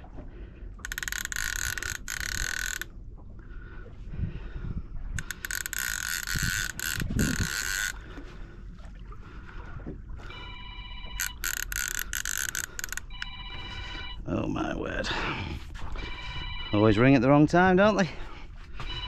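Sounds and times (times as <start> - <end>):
fishing reel ratchet clicking: 0.8 - 2.9, 5.2 - 8.0, 11.2 - 13.3.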